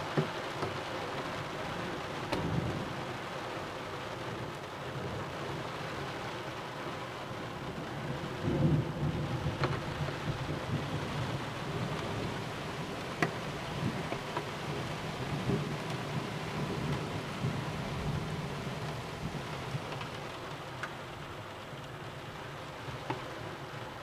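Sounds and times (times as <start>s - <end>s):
steady rain: 0.0s - 24.0s
thunder rumbling: 7.6s - 20.2s.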